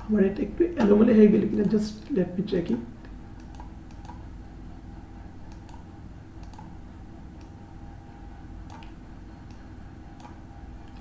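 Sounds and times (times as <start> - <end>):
steady low hum: 0.0 - 11.0
computer mouse clicks: 3.4 - 4.2, 5.5 - 6.8, 7.4 - 7.6, 8.6 - 11.0.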